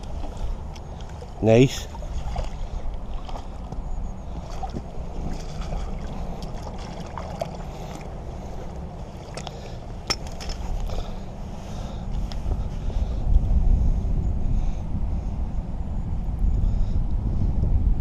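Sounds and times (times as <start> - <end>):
water splashes and sloshing: 0.0 - 13.5
wind rumbling on microphone: 0.0 - 18.0.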